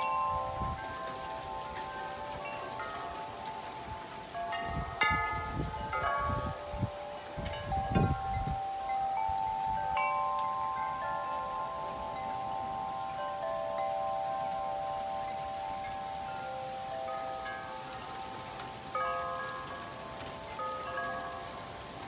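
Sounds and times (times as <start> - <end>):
storm wind: 0.0 - 2.5, 3.2 - 10.4
metal wind chime ringing: 0.0 - 22.0
rain hissing: 0.0 - 22.0.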